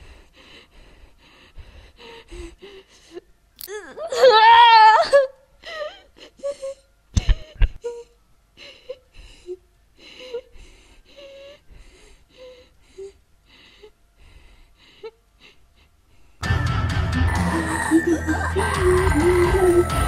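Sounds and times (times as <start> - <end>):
person gasping: 17.3 - 20.0.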